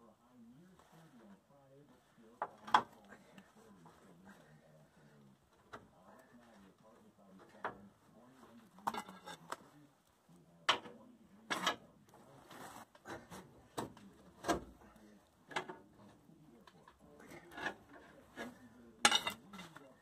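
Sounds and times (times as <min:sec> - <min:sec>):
metal tools clanking and scraping: 0:08.8 - 0:09.6, 0:10.7 - 0:11.9, 0:16.7 - 0:19.9.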